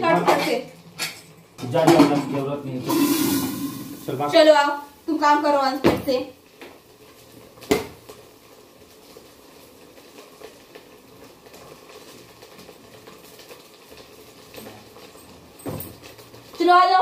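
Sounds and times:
low hiss: 0:00.0 - 0:11.9.

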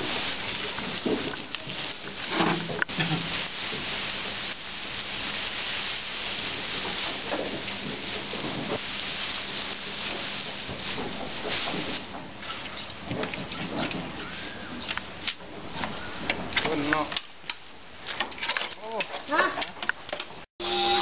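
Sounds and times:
steady hiss: 0:00.0 - 0:12.2
dry straw rustling and scraping: 0:00.0 - 0:19.0.

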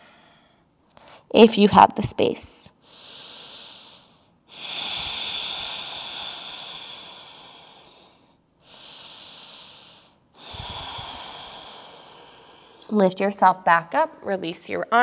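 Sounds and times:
woman breathing deeply: 0:00.0 - 0:01.3, 0:02.8 - 0:13.0.

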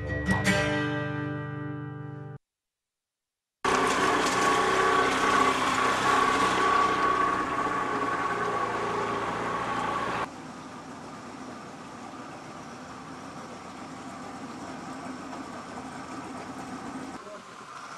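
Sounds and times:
engine running with whine: 0:03.6 - 0:17.9
outdoor ambience hiss: 0:03.7 - 0:17.9.

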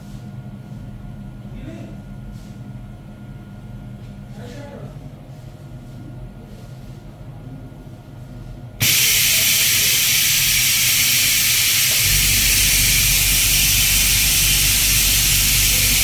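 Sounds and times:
machine low hum: 0:05.0 - 0:16.0
compressed air hissing: 0:08.8 - 0:16.0.

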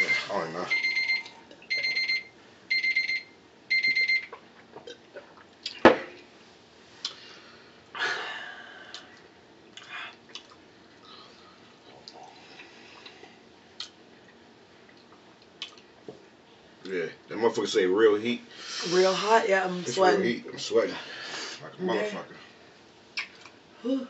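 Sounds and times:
timer alarm beeping: 0:00.0 - 0:04.3.

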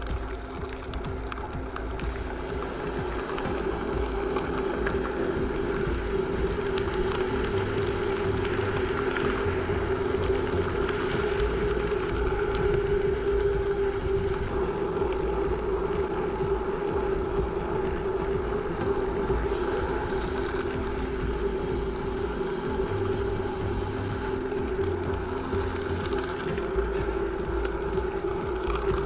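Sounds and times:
bicycle tyres rolling on gravel: 0:00.0 - 0:29.0
wind on microphone: 0:00.0 - 0:29.0.

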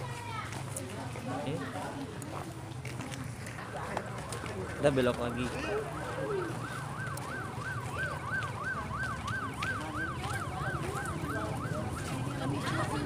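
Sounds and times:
electronic siren yelping: 0:04.2 - 0:12.4.

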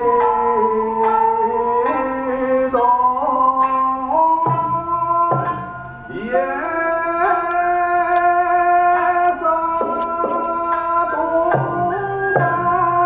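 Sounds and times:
plucked lute: 0:00.0 - 0:13.0
person singing long gliding notes: 0:06.1 - 0:13.0.

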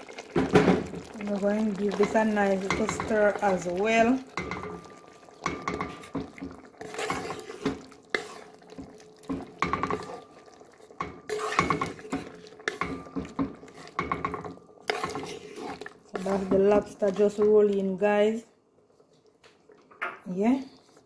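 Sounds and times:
wooden spoon scraping metal pot: 0:01.0 - 0:18.0
pot ringing: 0:04.4 - 0:06.2, 0:12.7 - 0:13.4.

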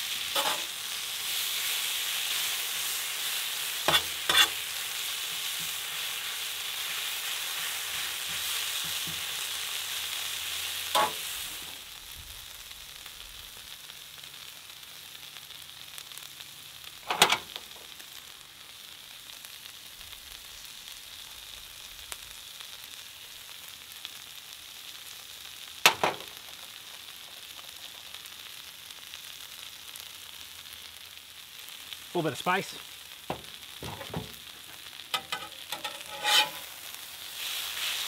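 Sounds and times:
food sizzling on griddle: 0:00.0 - 0:38.0
metal spatula clinking: 0:35.2 - 0:36.6.

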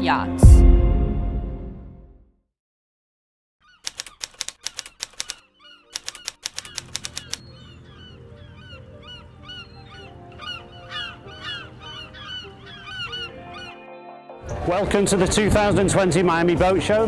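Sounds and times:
birds calling: 0:03.6 - 0:14.6.

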